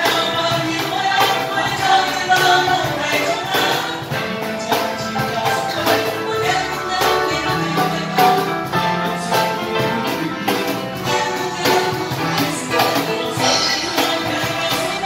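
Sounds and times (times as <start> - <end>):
cajon beat: 0.0 - 15.0
electronic keyboard: 0.0 - 15.0
melodica: 5.0 - 15.0.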